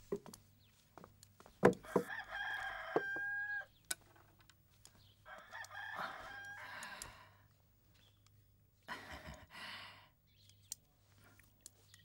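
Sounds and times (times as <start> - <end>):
rooster crowing: 1.8 - 3.7, 5.3 - 6.8.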